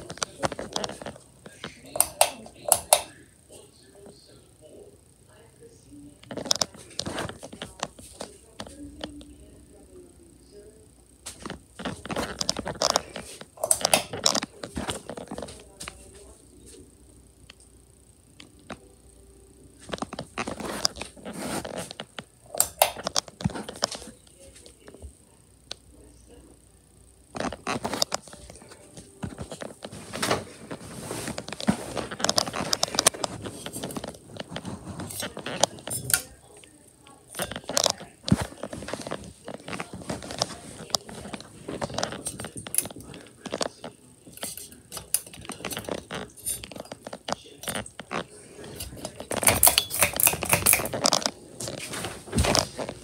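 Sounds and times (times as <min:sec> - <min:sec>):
handling rustling: 0:27.4 - 0:53.0.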